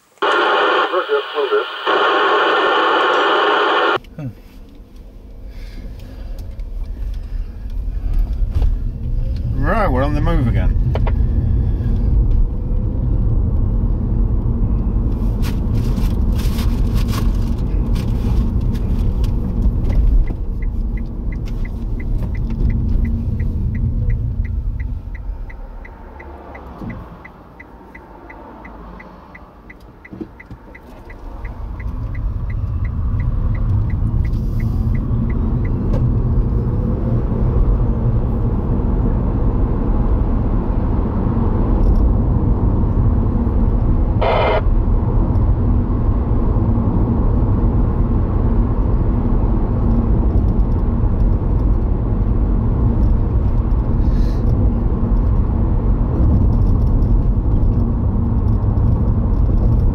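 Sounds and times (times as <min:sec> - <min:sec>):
engine and tyre rumble: 0:03.8 - 0:59.9
turn indicator ticking: 0:18.6 - 0:36.6.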